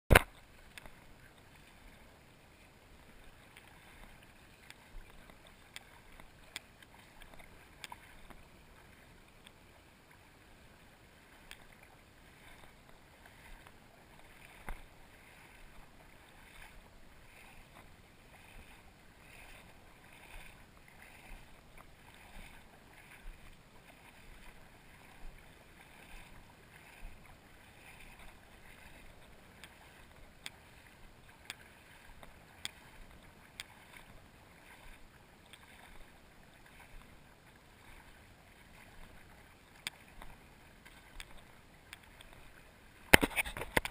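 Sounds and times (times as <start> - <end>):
soft ticks: 0.1 - 1.0, 4.5 - 8.4, 9.3 - 9.6, 11.4 - 11.9, 29.6 - 29.8, 30.4 - 30.6, 31.4 - 31.6, 32.2 - 34.0, 39.8 - 40.3, 40.9 - 42.4
little water splashes: 0.1 - 43.9
water lapping in shallow water: 0.1 - 43.9.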